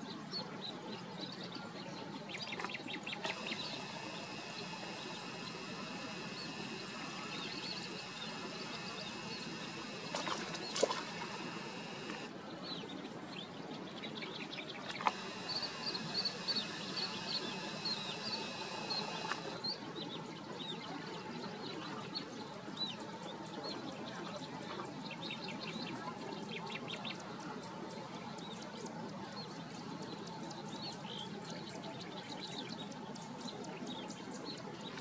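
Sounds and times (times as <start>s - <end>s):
small birds chirping: 0.1s - 21.0s
sharp clicks: 3.2s - 12.3s, 14.9s - 19.6s
steady hiss: 3.3s - 12.3s, 15.1s - 19.6s.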